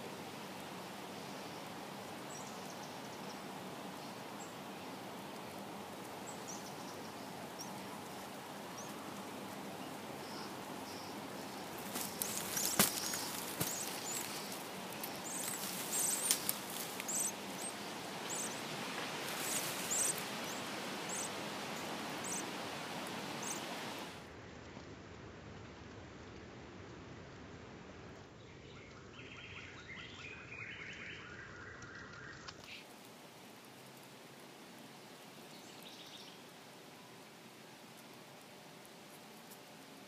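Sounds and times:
steady outdoor hiss: 0:00.0 - 0:40.0
nestlings cheeping: 0:10.9 - 0:22.6
rustling and clicks in nest: 0:11.4 - 0:20.5, 0:38.0 - 0:40.0.

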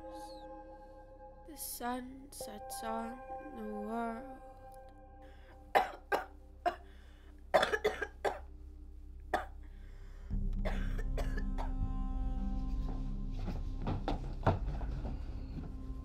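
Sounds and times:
low steady drone: 0:00.0 - 0:16.0
woman coughing: 0:05.7 - 0:06.8, 0:07.5 - 0:08.4, 0:10.6 - 0:11.7.

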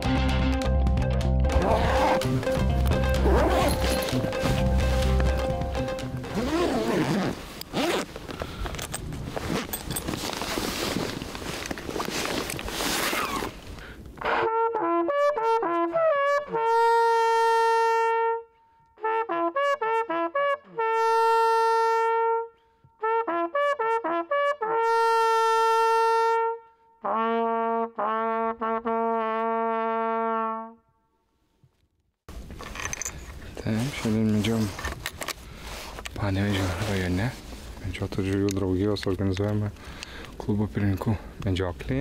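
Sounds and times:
hunting horn call: 0:01.5 - 0:05.5, 0:14.2 - 0:30.8
handling rustle: 0:03.2 - 0:05.6, 0:06.2 - 0:14.2, 0:32.3 - 0:41.2.

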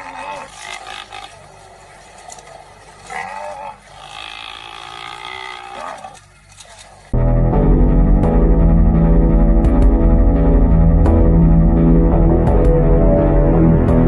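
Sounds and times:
drawn-out animal cries: 0:00.0 - 0:06.8
rough field noise: 0:00.0 - 0:07.2.

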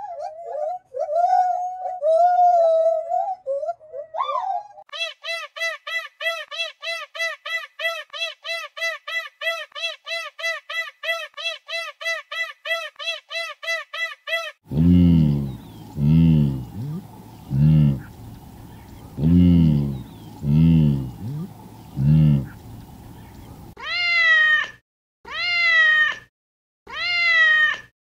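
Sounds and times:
low-pitched animal calls: 0:14.7 - 0:23.8.

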